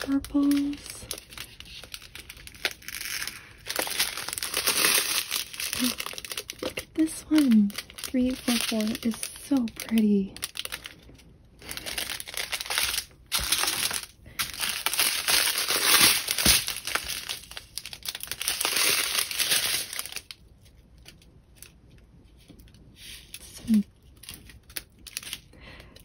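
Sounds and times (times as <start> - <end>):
plastic bags crinkling: 0.0 - 26.0.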